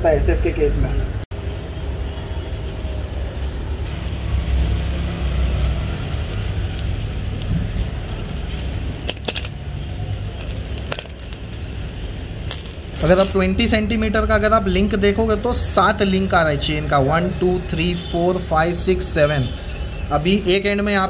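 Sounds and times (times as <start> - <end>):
metal chain clinking and rattling: 3.9 - 13.7.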